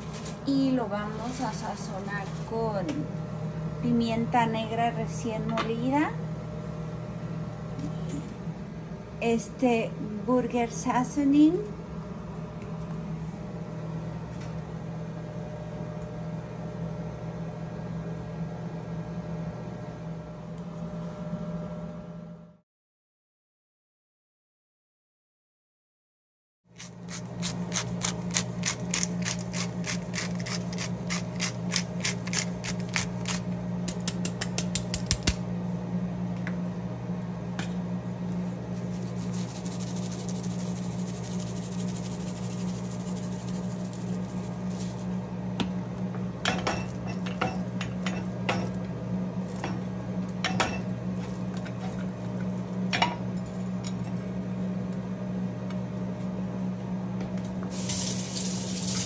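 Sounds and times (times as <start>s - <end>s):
pepper mill grinding clicks: 26.8s - 35.4s
low hum: 35.4s - 59.0s
seasoning shaken from shaker jar: 38.6s - 45.2s, 57.7s - 59.0s.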